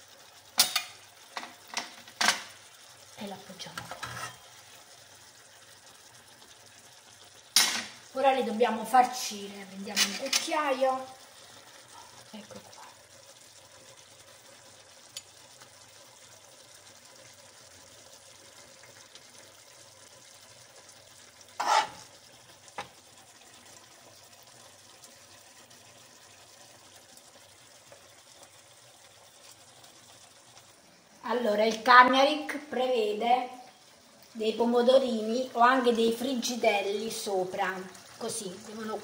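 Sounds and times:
sauce sizzling in a frying pan: 0.0 - 39.0
metal spoon scraping a pan: 3.8 - 4.5, 9.9 - 10.6, 21.5 - 22.1.

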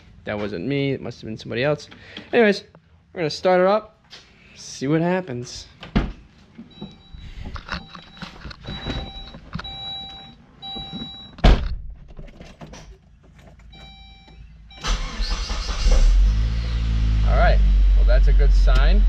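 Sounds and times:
car engine cranking and idling: 11.9 - 19.0.

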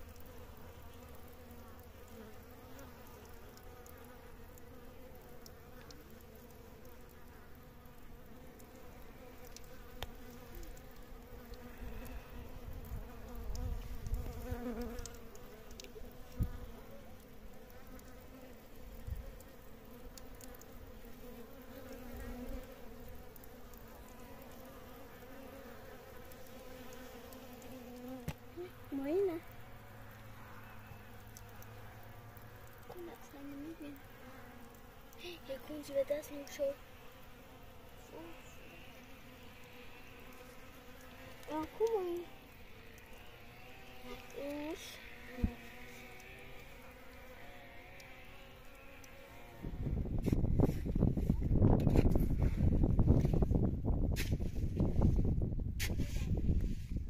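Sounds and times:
insects buzzing: 0.0 - 53.5.

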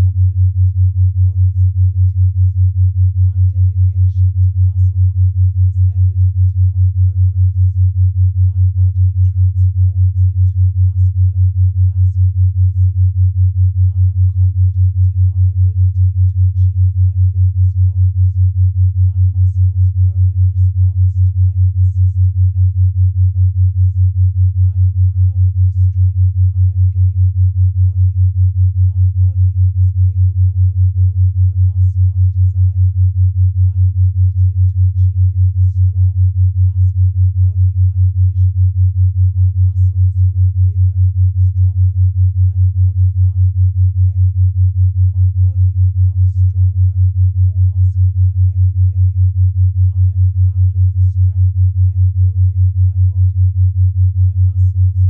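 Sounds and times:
low beating sine tone: 0.0 - 55.0.

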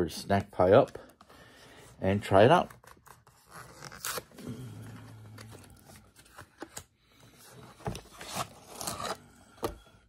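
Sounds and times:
cardboard box opening: 5.2 - 9.8.

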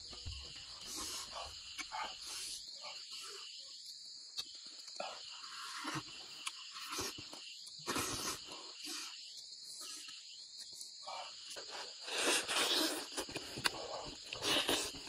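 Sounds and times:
insects chorus: 0.0 - 15.0
person slurping and lip-smacking: 7.9 - 8.4, 11.6 - 15.0.

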